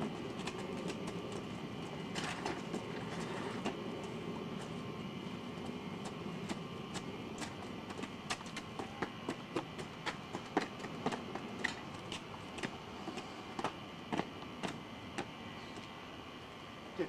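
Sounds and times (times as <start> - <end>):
footsteps on paved path: 0.0 - 16.0
faint hum: 0.0 - 17.0.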